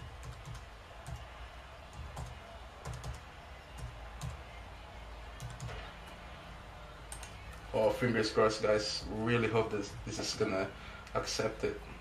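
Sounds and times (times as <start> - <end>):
typing on computer keyboard: 0.2 - 1.2, 1.9 - 3.2, 5.4 - 5.8, 7.1 - 7.6.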